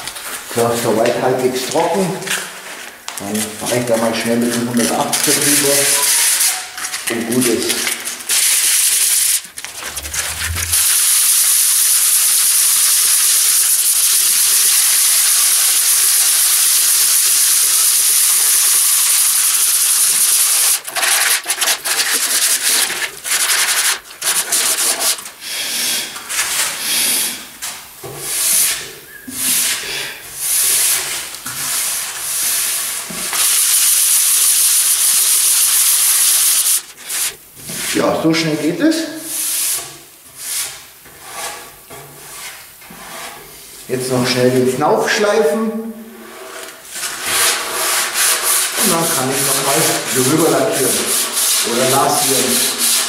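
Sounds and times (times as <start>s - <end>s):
sandpaper rubbing on wood: 3.4s - 6.6s, 8.3s - 25.3s, 30.4s - 38.0s, 46.2s - 53.0s.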